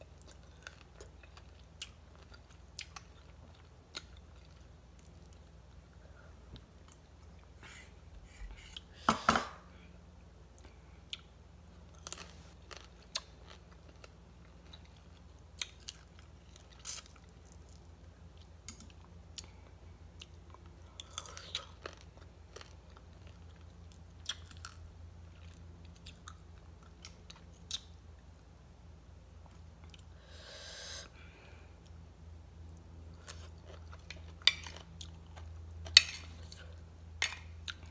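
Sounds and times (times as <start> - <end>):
chewing crisp salad: 0.0 - 6.0, 10.6 - 28.0, 32.6 - 37.9.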